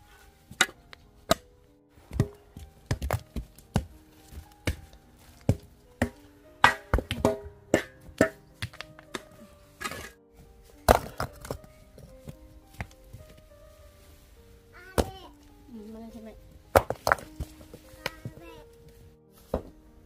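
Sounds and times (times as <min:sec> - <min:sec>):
soft background music: 0:00.0 - 0:20.0
metal hoe chopping stony dirt: 0:02.1 - 0:10.2, 0:10.9 - 0:11.6, 0:16.7 - 0:17.4.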